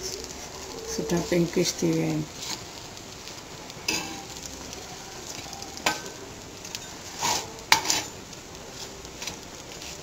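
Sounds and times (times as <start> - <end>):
faint oil sizzle: 0.0 - 10.0
metal spatula scraping griddle: 2.3 - 4.4, 5.2 - 10.0.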